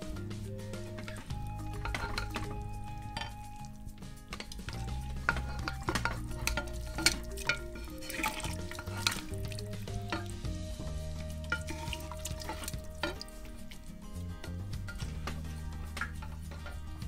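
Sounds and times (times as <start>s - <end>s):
background music with bass: 0.0s - 17.0s
cutlery scraping on plate and pot: 1.0s - 3.6s, 4.2s - 9.5s, 11.5s - 13.9s, 14.9s - 17.0s.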